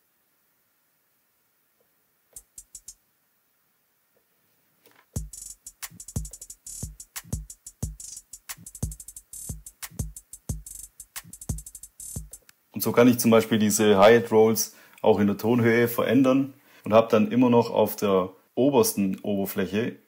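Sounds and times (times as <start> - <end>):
hi-hats and hi-hat rolls: 2.4 - 3.0, 5.2 - 12.4
kick drum: 5.2 - 5.5, 6.2 - 8.0, 8.8 - 10.7, 11.4 - 12.4.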